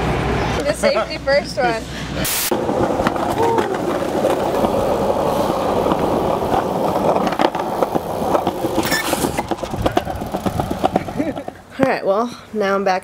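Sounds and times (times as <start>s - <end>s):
skateboard wheels clicking over cracks: 2.5s - 11.7s
skateboard wheels rumbling on pavement: 2.5s - 12.1s.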